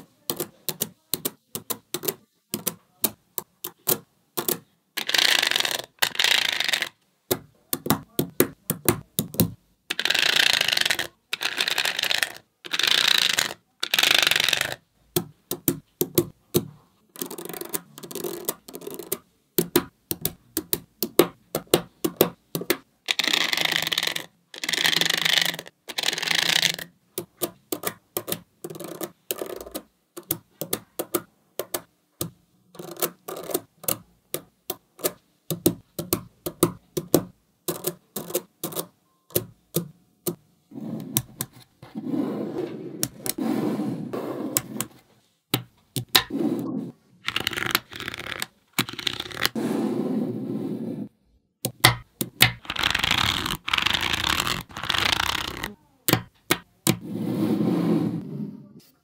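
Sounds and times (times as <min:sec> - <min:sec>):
plastic card scraping balls: 0:00.0 - 0:07.0, 0:07.8 - 0:31.9, 0:32.8 - 0:39.6, 0:40.3 - 0:51.1, 0:51.7 - 0:58.2
magnetic balls clicking: 0:00.0 - 0:40.4, 0:45.5 - 0:46.3, 0:51.6 - 0:57.0.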